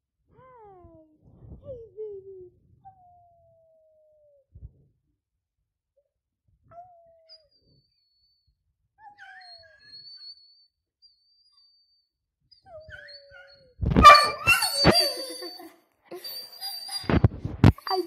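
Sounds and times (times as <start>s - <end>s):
dog yelping and howling: 9.0s - 10.4s, 12.5s - 17.2s
dog whimpering: 9.0s - 10.5s, 12.5s - 18.0s.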